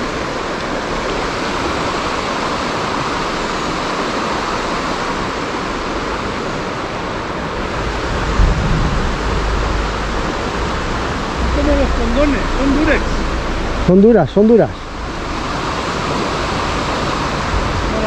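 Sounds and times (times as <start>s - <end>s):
river water rushing: 0.0s - 18.0s
low rumble: 7.7s - 14.0s.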